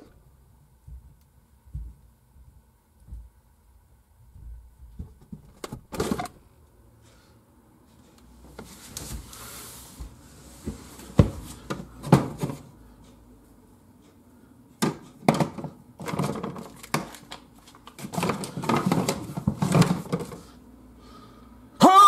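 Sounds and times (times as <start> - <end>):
items clattering on plastic shelves: 4.9 - 6.4, 10.1 - 12.8, 14.8 - 20.6.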